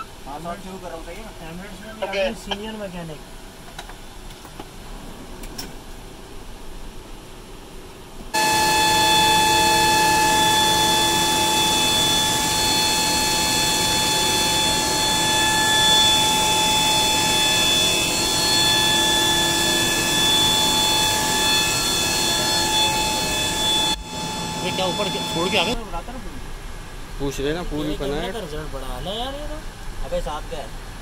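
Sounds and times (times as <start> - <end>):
aircraft machinery whine: 0.0 - 2.6, 3.2 - 28.5
rushing noise: 4.7 - 27.4.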